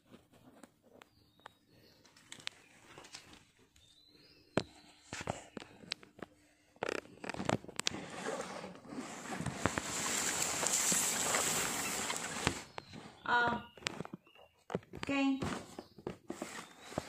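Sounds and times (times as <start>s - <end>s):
rustling: 4.8s - 17.0s.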